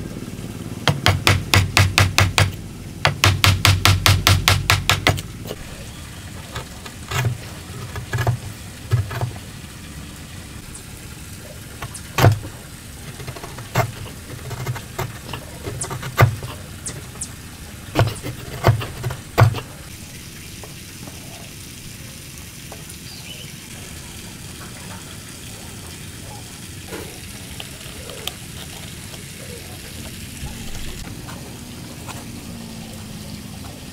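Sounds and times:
chisel knocking on wood: 0.9 - 5.2, 11.8 - 12.5, 13.2 - 16.5, 18.0 - 19.6.

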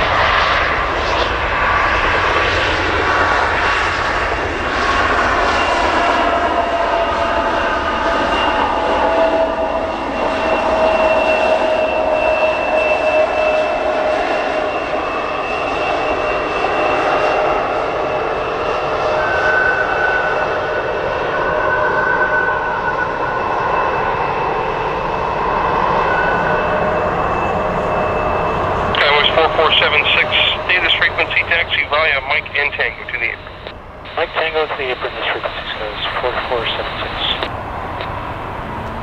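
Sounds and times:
jet engines whining: 0.0 - 39.0
higher whine: 25.9 - 39.0.

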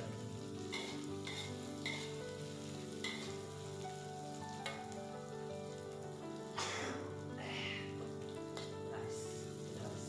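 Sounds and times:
faint background music: 0.0 - 10.0
food sizzling in hot oil: 0.0 - 10.0
metal ladle scraping wok: 0.7 - 2.2.

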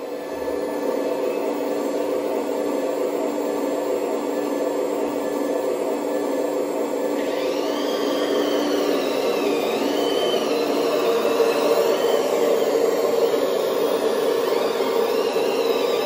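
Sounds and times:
motor whine: 0.0 - 16.0
diesel engine running: 6.6 - 16.0.

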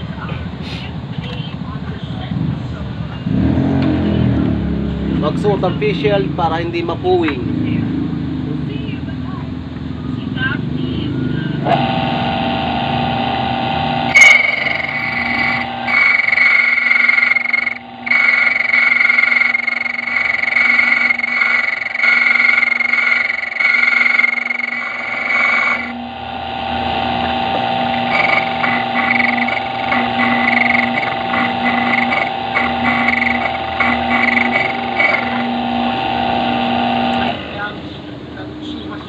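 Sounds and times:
rasping pulses: 14.1 - 37.2
key-cutting machine grinding: 14.1 - 37.4.

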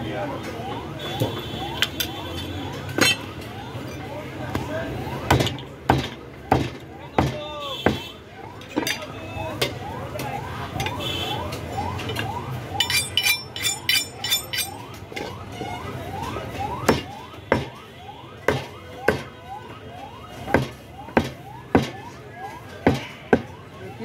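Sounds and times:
rising siren-like wail: 0.0 - 7.6, 8.2 - 24.0
cleaver chopping on wooden block: 5.3 - 8.0, 16.9 - 17.7, 20.5 - 22.0
ringing metallic clinks: 12.8 - 14.8.

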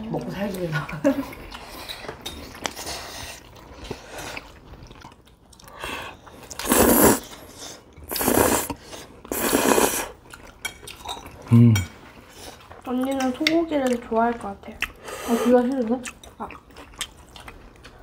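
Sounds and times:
person chewing food: 0.1 - 18.0.

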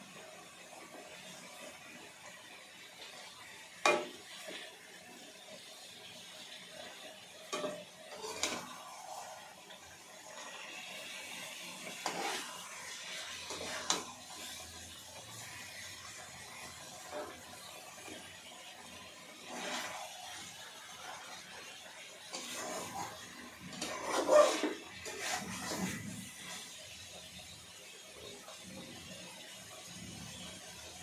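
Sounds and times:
chicken sizzling in oil: 0.0 - 31.0
metal pot clanking: 3.8 - 4.3, 7.5 - 8.7.

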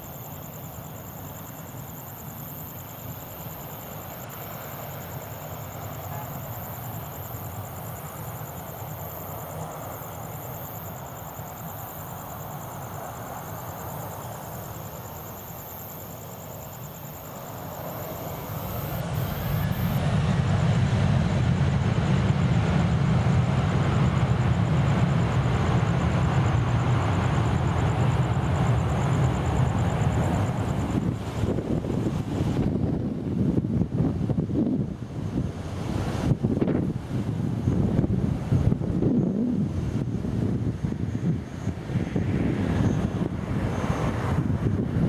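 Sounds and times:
jet engines throttling up: 17.7 - 32.0.

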